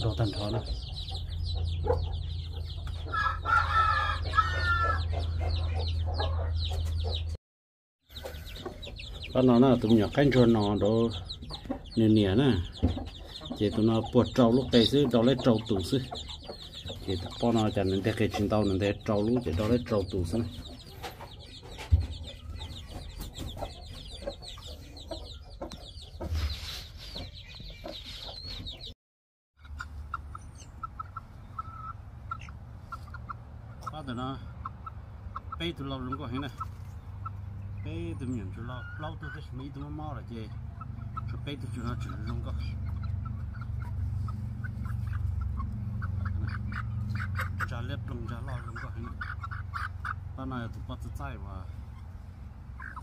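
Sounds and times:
chicks peeping: 0.0 - 7.4, 8.1 - 29.0, 29.6 - 53.0
hen clucking: 0.0 - 7.4, 8.1 - 28.9, 29.6 - 53.0
hen calling: 29.6 - 50.3, 51.5 - 53.0.

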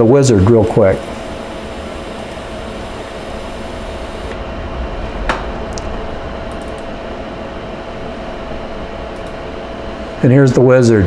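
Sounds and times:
machine hum: 0.0 - 11.0
high hiss: 0.5 - 4.4.

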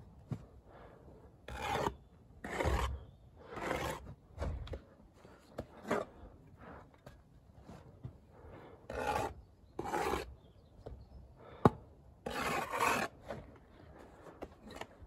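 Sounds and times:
trowel scraping bricks and mortar: 1.4 - 6.3, 8.6 - 10.4, 12.2 - 15.0.

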